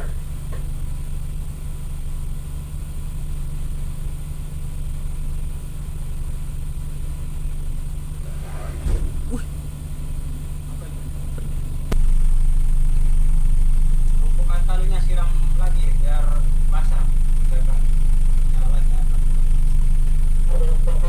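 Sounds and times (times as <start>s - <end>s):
short thump: 8.4s - 9.7s.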